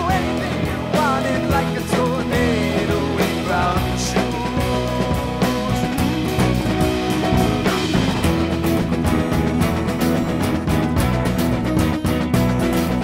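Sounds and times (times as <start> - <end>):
man singing: 0.0 - 8.2
rock band playing live: 0.0 - 13.0.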